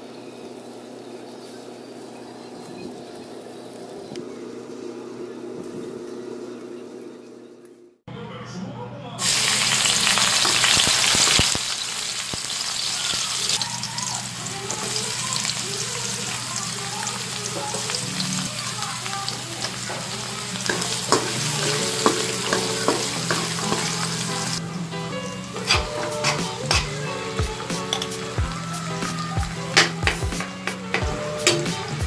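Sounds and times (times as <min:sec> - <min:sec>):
onion sizzling in hot oil: 0:09.2 - 0:32.0
spatula scraping and knocking wok: 0:14.6 - 0:32.0.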